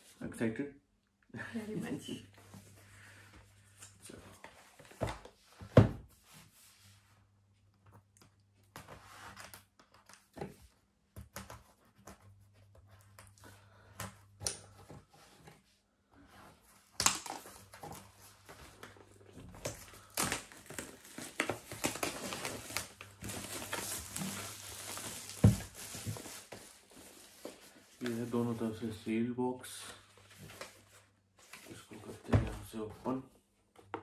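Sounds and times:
plastic wrap crinkling: 0:16.9 - 0:28.6.

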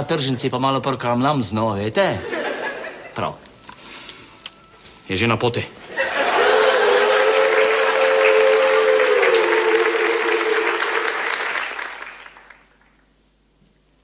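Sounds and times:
audience applauding: 0:05.9 - 0:13.1.

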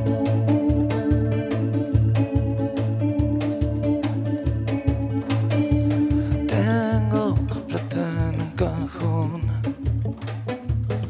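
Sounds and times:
cajon drumming: 0:00.0 - 0:11.0
electric guitars: 0:00.0 - 0:11.0
low bass pulse: 0:00.0 - 0:11.0
man singing: 0:06.1 - 0:10.2.

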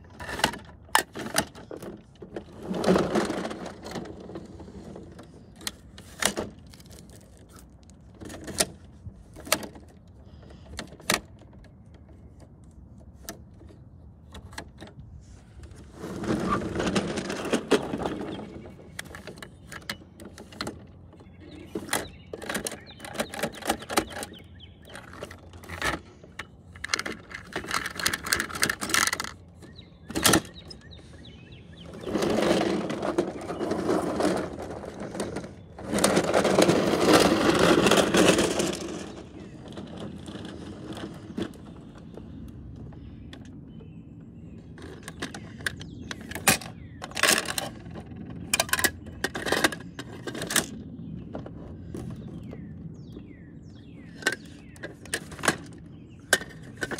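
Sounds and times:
plastic scraping on asphalt: 0:00.0 - 0:56.9
rapid plastic clattering: 0:00.1 - 0:12.4, 0:15.6 - 0:42.4, 0:44.8 - 0:52.7, 0:54.1 - 0:56.9
plastic toy clicks and knocks: 0:17.4 - 0:29.4, 0:44.8 - 0:50.8.

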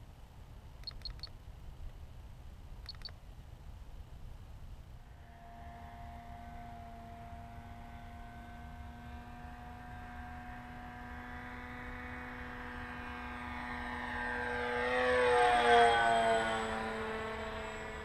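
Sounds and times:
model plane motor whine: 0:05.0 - 0:18.0.

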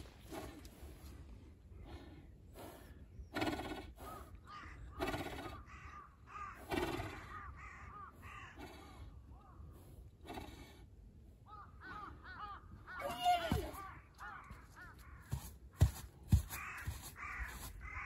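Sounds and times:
crows cawing: 0:04.4 - 0:05.0, 0:05.6 - 0:08.6, 0:11.5 - 0:18.0.

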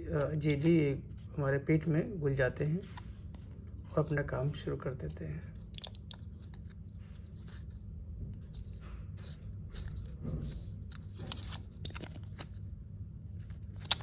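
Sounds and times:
steady low hum: 0:00.0 - 0:14.0
plastic blister strip crinkling: 0:10.8 - 0:12.7, 0:13.4 - 0:14.0.

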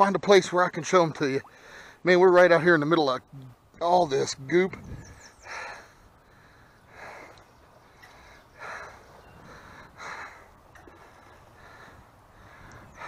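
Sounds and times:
man breathing hard: 0:01.5 - 0:02.0, 0:05.4 - 0:13.0.

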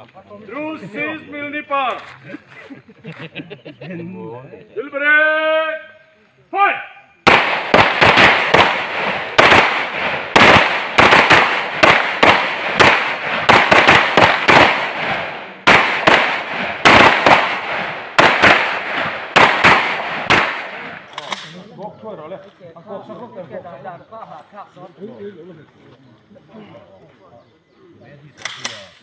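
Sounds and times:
pistol shots: 0:07.2 - 0:21.6.

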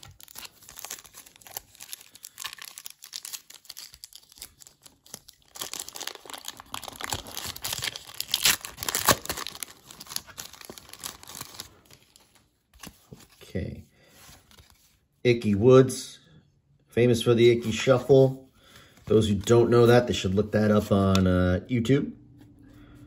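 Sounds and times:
plastic wrapper tearing and crinkling: 0:00.0 - 0:13.2.

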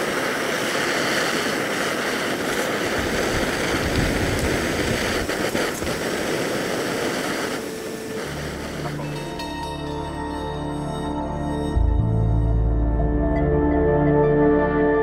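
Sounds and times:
wind buffets on microphone: 0:00.0 - 0:08.2
gas stove burner hissing: 0:00.0 - 0:10.0
background music: 0:07.6 - 0:15.0.

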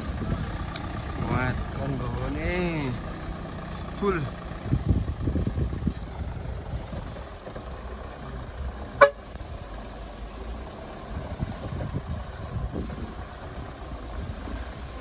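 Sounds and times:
truck engine running low: 0:00.0 - 0:15.0
truck horn toot: 0:09.0 - 0:09.3.

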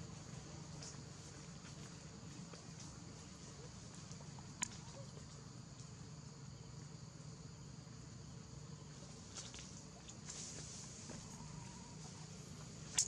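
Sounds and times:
high-pitched insect chorus: 0:02.8 - 0:13.0.

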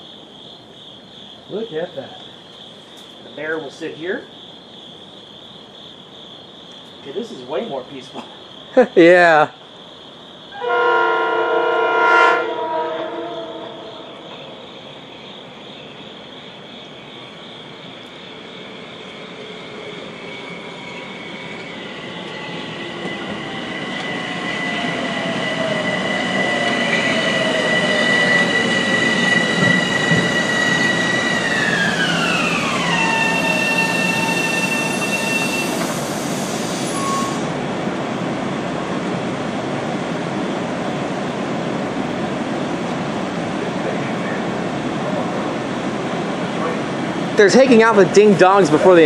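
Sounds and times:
train wheels on rails: 0:00.0 - 0:06.0, 0:12.5 - 0:49.0
electric propulsion whine: 0:18.3 - 0:38.1.

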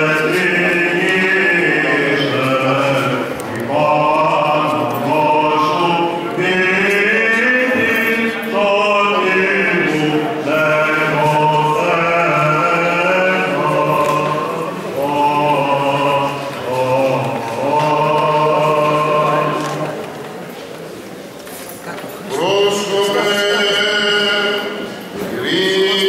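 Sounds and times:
low held vocal drone: 0:00.0 - 0:20.1
voices chanting slow melody: 0:00.0 - 0:20.1.

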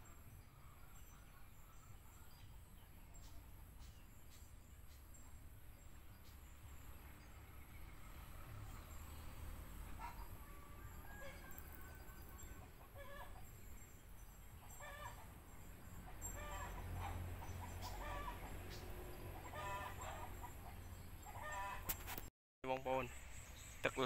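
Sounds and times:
chickens calling: 0:09.9 - 0:13.6, 0:16.0 - 0:22.1.

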